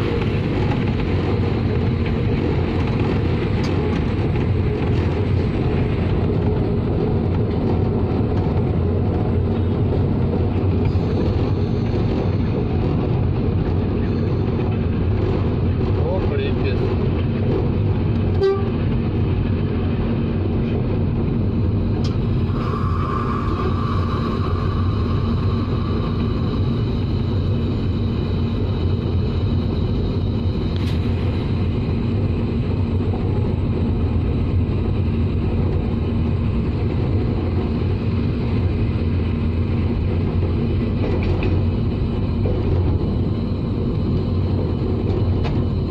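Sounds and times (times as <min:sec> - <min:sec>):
locomotive engine and track noise: 0:00.0 - 0:45.9
locomotive horn: 0:18.3 - 0:18.8.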